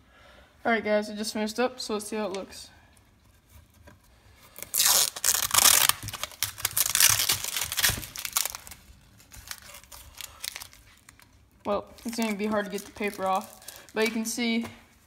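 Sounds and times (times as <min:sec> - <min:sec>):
tape and paper tearing off wood: 0:04.5 - 0:11.3.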